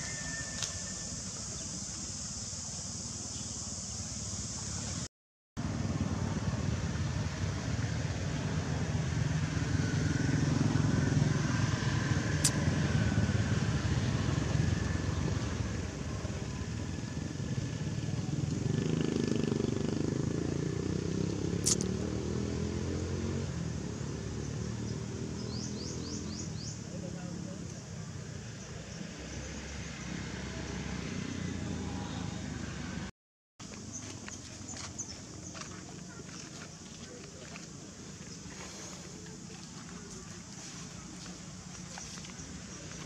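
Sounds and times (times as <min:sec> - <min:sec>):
motorcycle engine running: 0:05.6 - 0:27.4, 0:30.5 - 0:43.0.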